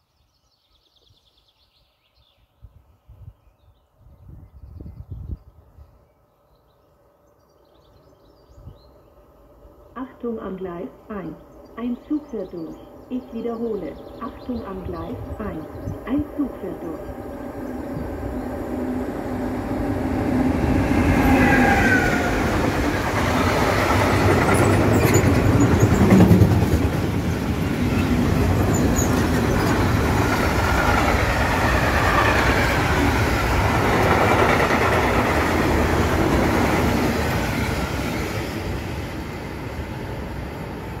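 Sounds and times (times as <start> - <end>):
train wheels rumbling on rails: 17.0 - 41.0.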